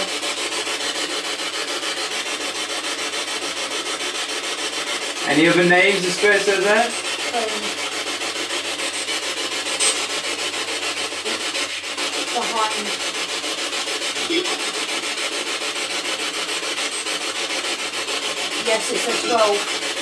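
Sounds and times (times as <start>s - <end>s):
voice-like fragments: 12.2s - 13.0s, 18.6s - 20.0s.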